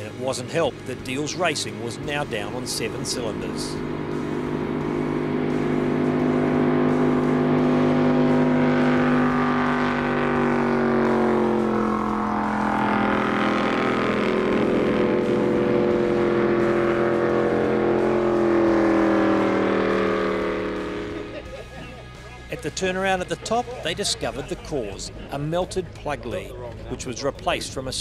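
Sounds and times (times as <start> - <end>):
boat engine misfiring: 0.0 - 22.2.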